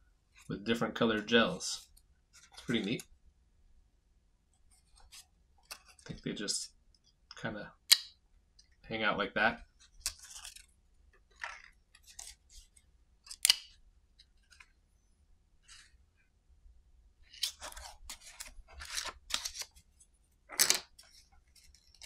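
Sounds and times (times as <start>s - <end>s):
clicks and rustles of handling: 17.3s - 22.0s.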